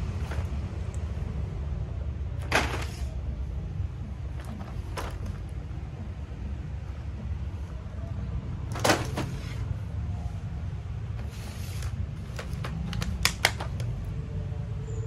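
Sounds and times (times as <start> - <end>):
plastic packaging clack: 12.2 - 14.0.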